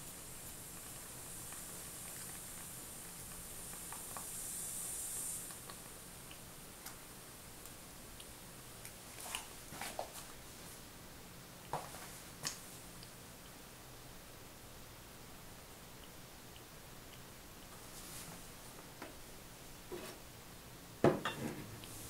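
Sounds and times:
espresso machine hiss: 0.0 - 6.0, 21.6 - 22.0.

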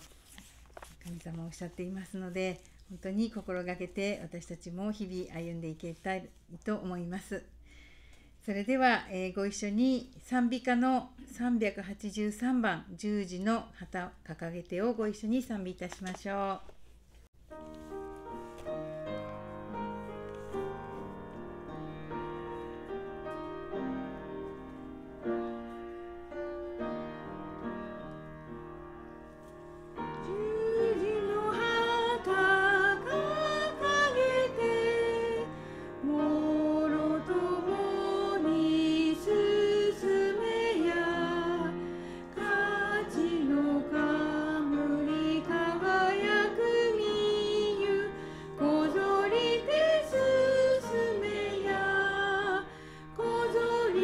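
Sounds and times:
piano playing: 17.4 - 54.0
voices singing a hymn: 30.2 - 54.0.

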